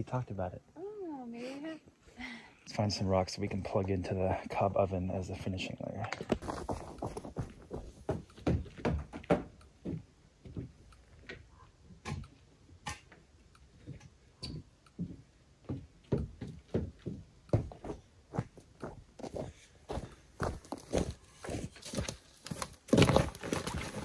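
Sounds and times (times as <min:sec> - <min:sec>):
footsteps on wooden steps: 0:06.1 - 0:11.4, 0:13.8 - 0:24.0.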